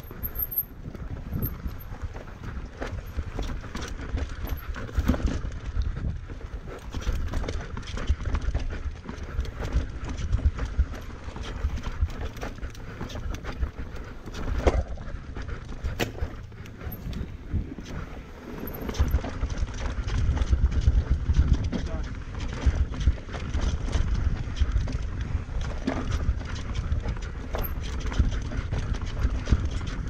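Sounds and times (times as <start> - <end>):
steady low rumble: 0.0 - 30.0
bike clattering over rocks: 6.4 - 30.0.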